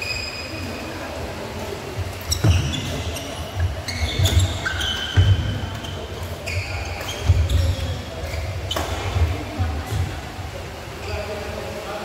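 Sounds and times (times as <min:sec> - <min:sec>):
shoes squeaking on court: 0:02.1 - 0:10.0
racket hitting shuttlecock: 0:08.7 - 0:09.3.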